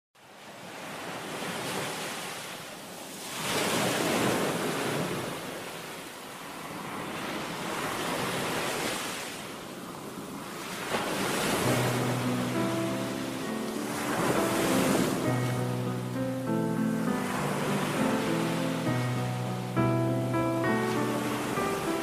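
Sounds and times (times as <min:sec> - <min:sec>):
surf breaking on beach: 0:10.4 - 0:22.0.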